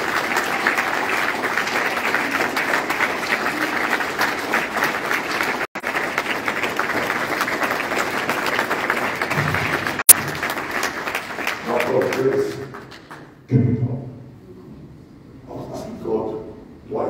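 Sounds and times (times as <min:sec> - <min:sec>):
crowd applauding: 0:00.0 - 0:13.4.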